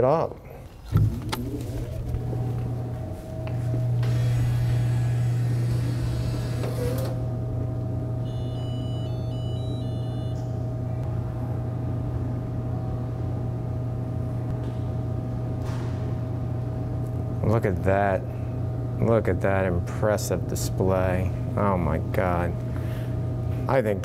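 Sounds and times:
soda machine humming: 0.3s - 14.5s.

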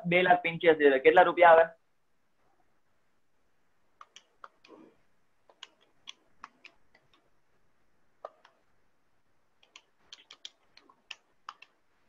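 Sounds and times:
faint sharp clicks: 9.6s - 11.8s.

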